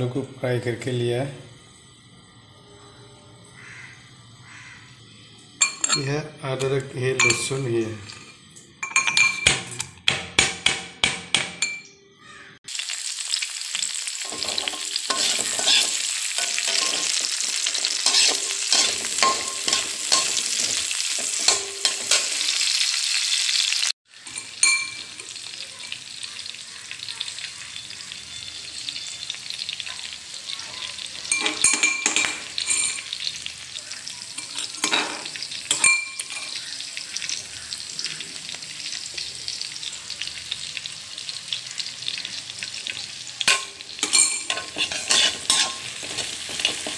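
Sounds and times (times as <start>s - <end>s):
spoon clinking on metal cup: 5.6s - 10.0s, 11.4s - 12.0s, 14.3s - 17.3s, 18.0s - 22.3s, 24.3s - 25.3s, 31.3s - 33.2s, 34.4s - 36.6s, 43.5s - 46.9s
metal pestle pounding in mortar: 9.3s - 11.8s
onions sizzling in hot oil: 12.6s - 46.9s
spatula stirring in pan: 13.8s - 22.7s, 41.8s - 46.9s.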